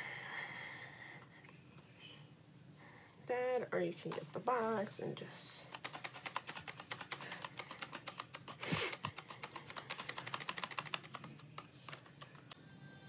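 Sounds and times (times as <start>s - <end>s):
rapid light clicking and tapping: 5.7s - 12.6s.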